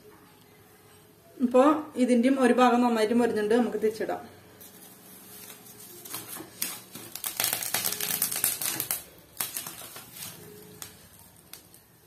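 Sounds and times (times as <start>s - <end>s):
banana-leaf parcels crackling: 4.6s - 12.0s.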